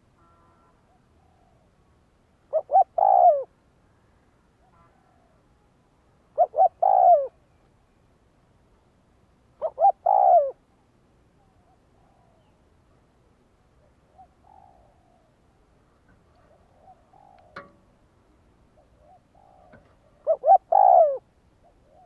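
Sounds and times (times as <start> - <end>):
dove cooing: 0.9 - 1.8, 2.5 - 3.5, 6.3 - 7.4, 9.6 - 10.6, 11.4 - 12.6, 13.8 - 17.9, 18.7 - 22.0.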